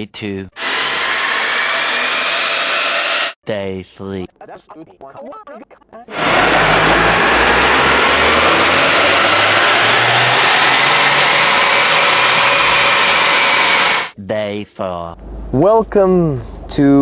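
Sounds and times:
car engine running under load: 6.1 - 14.1.

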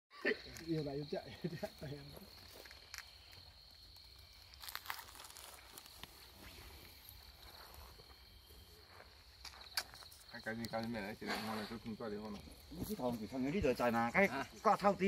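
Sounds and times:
crickets trilling: 0.1 - 15.0
faint scuffs and crunches: 4.4 - 10.3.

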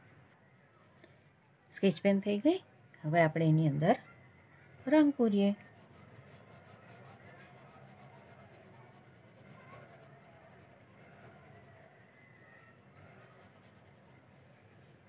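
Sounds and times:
pencil scratching on paper: 5.6 - 15.0.

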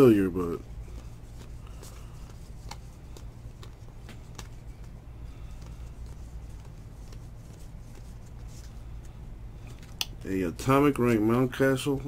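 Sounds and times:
low steady hum: 0.0 - 12.0
cards being flipped through: 0.4 - 10.2
cards clicking: 0.8 - 8.7, 9.6 - 10.2.

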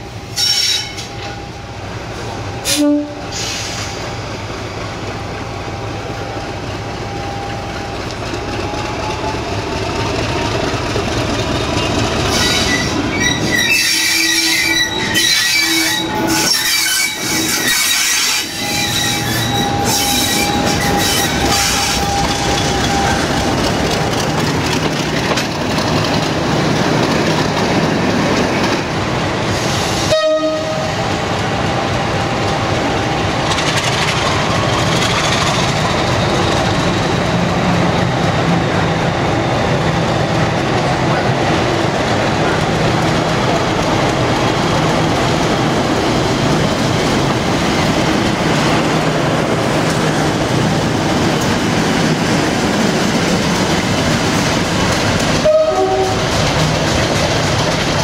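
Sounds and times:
diesel locomotive engines: 0.0 - 58.0
locomotive horn blasts: 2.7 - 3.4, 30.1 - 31.0, 55.4 - 56.3.

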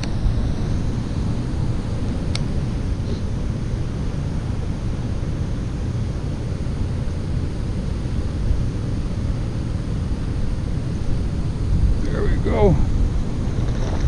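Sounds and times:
wind buffeting microphone: 10.6 - 14.0.

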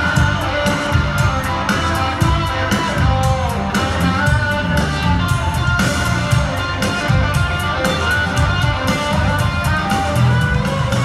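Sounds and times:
drum beat: 0.0 - 11.0
electric guitar: 0.0 - 11.0.

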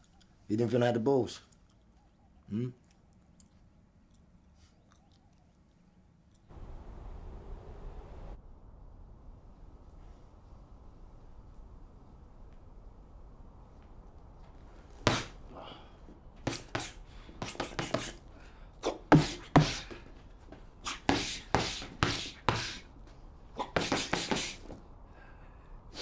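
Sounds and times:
fists punching a heavy bag: 15.0 - 15.4, 16.4 - 18.2, 19.1 - 20.0, 23.7 - 24.6.

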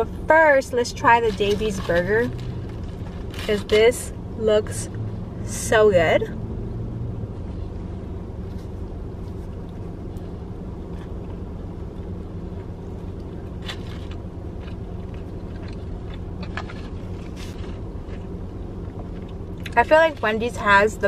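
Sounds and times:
car engine idling: 0.0 - 21.0
person chewing food: 8.5 - 19.8.

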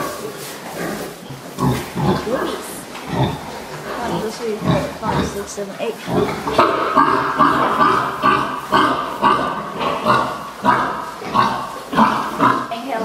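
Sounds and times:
pigs calling: 0.0 - 13.0.

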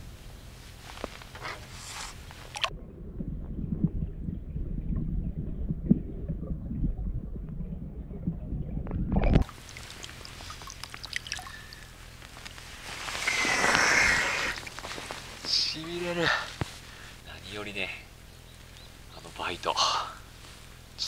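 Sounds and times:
muffled underwater rumbling: 0.1 - 19.3
water splashing and dripping: 2.3 - 2.8, 8.8 - 16.5.

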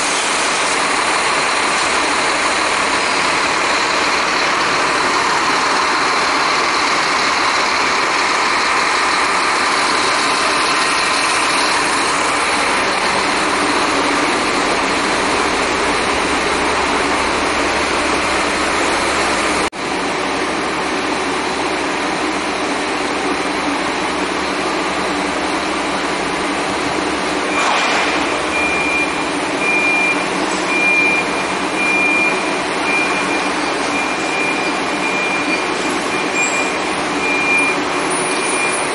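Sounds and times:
diesel engine idling: 0.0 - 38.9
high electronic beep: 28.5 - 38.9.

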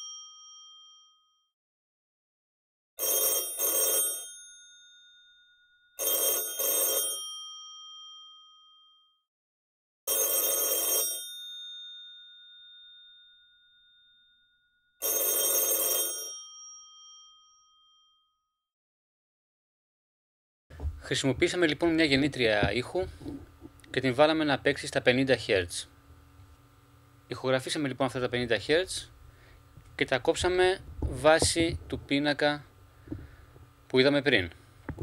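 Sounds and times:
telephone bell ringing: 0.0 - 1.1, 3.0 - 8.8, 10.1 - 14.4, 15.0 - 17.7.

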